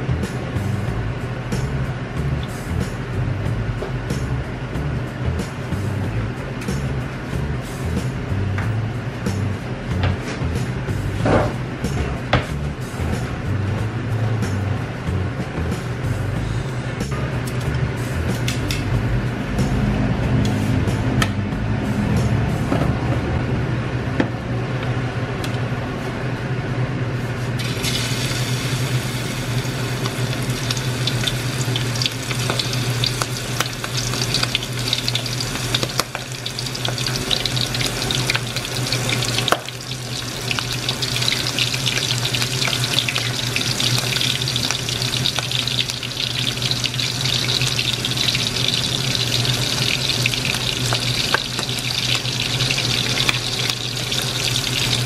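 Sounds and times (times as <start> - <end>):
food deep-frying in hot oil: 27.6 - 55.0.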